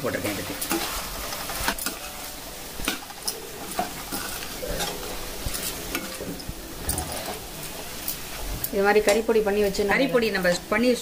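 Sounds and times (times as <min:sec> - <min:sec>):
vegetables sizzling: 0:00.0 - 0:11.0
spoon scraping against pan: 0:00.6 - 0:09.3.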